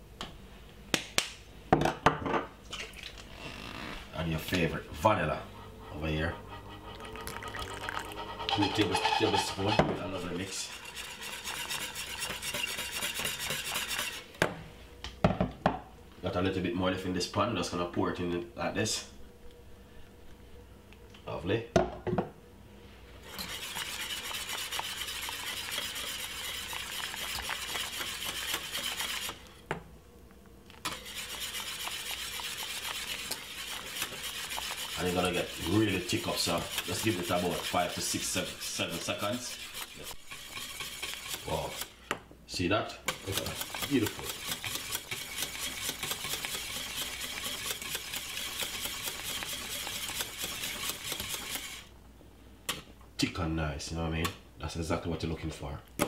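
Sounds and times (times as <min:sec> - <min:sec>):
porridge swishing: 0:02.7 - 0:14.3, 0:22.8 - 0:29.6, 0:30.7 - 0:51.9
whisk beating in saucepan: 0:04.5 - 0:14.3, 0:23.2 - 0:29.5, 0:30.8 - 0:42.0, 0:43.0 - 0:51.9.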